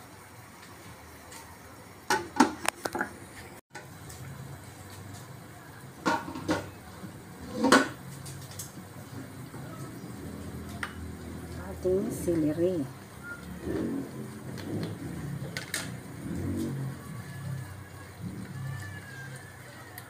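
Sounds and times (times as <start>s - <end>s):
cookware clattering: 6.0s - 6.8s, 7.4s - 8.0s.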